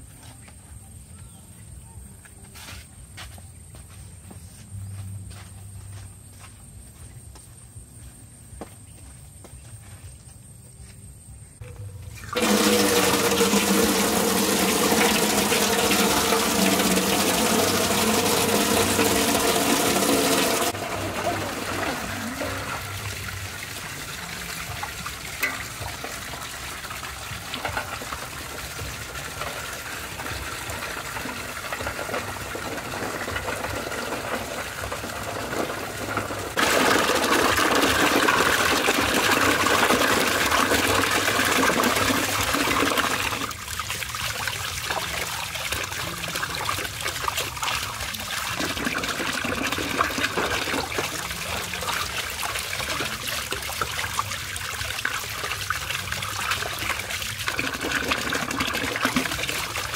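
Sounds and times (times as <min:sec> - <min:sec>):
water trickling into metal basin: 0:12.1 - 0:59.9
water gushing and splashing: 0:12.2 - 0:59.9.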